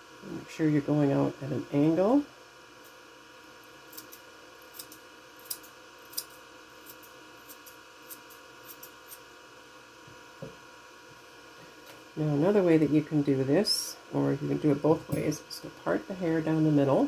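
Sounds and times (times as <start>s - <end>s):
scissors snipping hair: 3.9s - 9.2s.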